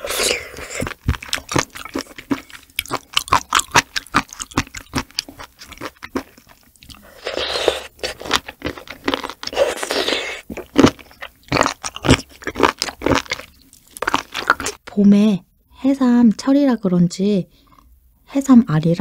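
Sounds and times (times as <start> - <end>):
slurping: 0.0 - 4.9, 5.7 - 14.8
wet mouth clicks and chewing: 0.1 - 14.8.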